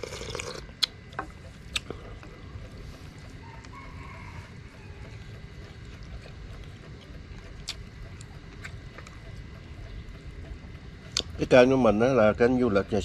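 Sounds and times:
eating noodles with chopsticks: 0.0s - 9.9s
low steady rumble: 0.0s - 13.0s.

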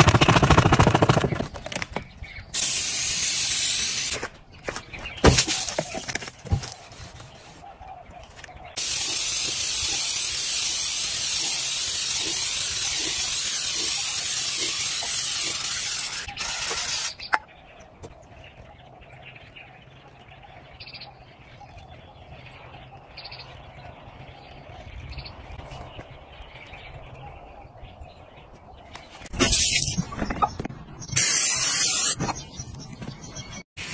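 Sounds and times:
aerosol spray can hissing: 2.6s - 4.2s, 8.8s - 17.2s, 31.2s - 32.2s.

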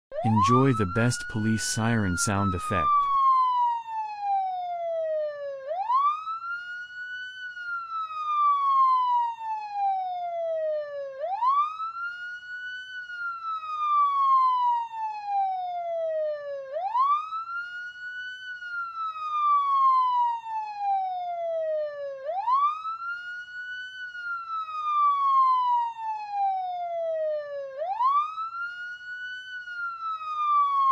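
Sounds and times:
police siren wailing: 0.1s - 30.9s.

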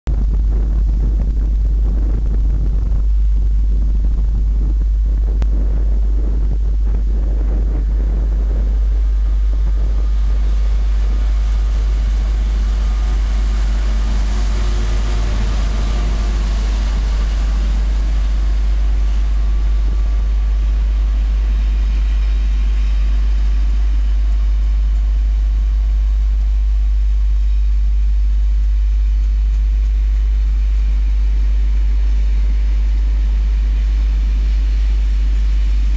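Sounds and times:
deep rumble: 0.0s - 35.9s
diesel locomotive engine passing: 5.4s - 27.0s.

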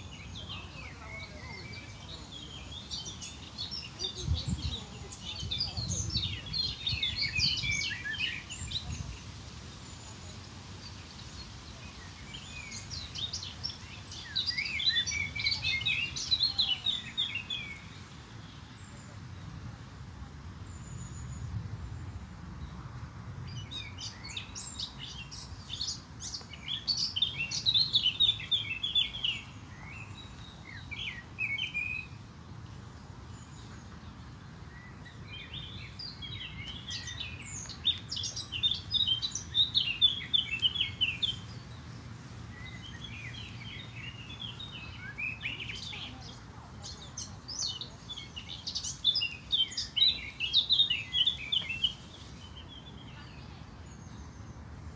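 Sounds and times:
small songbirds chirping and trilling: 0.0s - 54.9s.

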